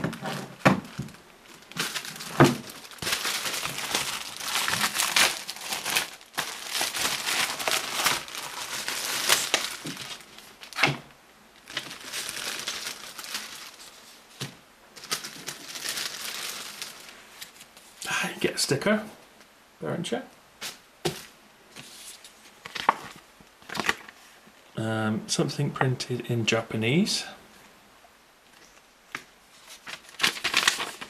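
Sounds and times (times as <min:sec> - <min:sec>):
plastic and paper crinkling: 0:00.0 - 0:11.0, 0:11.6 - 0:18.0, 0:20.7 - 0:24.2, 0:28.6 - 0:31.0.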